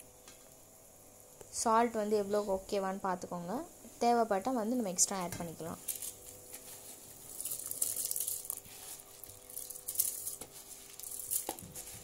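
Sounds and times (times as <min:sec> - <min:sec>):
faint steady hum: 0:00.0 - 0:12.0
rice pouring into boiling water: 0:05.8 - 0:12.0.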